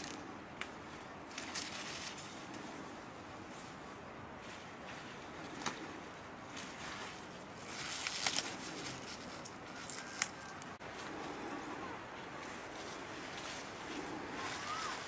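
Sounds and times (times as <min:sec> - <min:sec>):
leaves rustling: 0:00.0 - 0:15.0.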